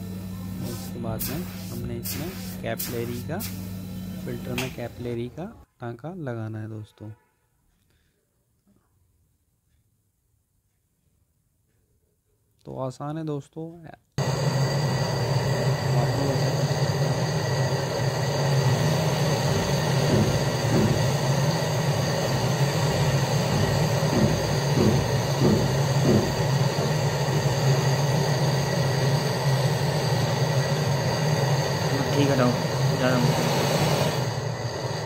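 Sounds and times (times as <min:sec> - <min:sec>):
gas torch burning: 0:00.0 - 0:05.4, 0:14.2 - 0:35.0.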